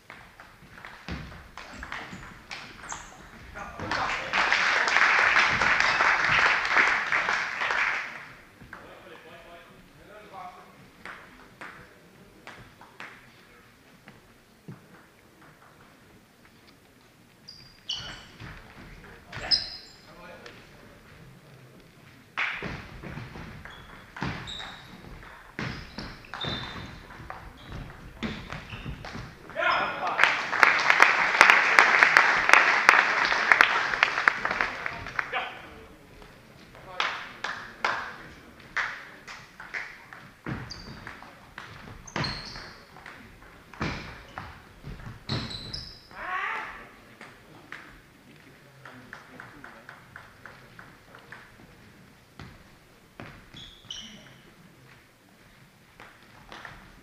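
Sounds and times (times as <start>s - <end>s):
sneaker squeak on floor: 1.1s - 3.4s, 17.4s - 18.6s, 19.3s - 20.1s, 23.2s - 29.9s, 40.5s - 41.2s, 41.8s - 42.9s, 45.2s - 46.1s, 53.2s - 54.5s
short high squeaks: 17.4s - 18.4s, 19.4s - 20.1s, 23.6s - 25.1s, 25.7s - 27.9s, 45.3s - 46.1s, 53.5s - 54.4s
echoing knocks and thuds: 22.6s - 29.5s.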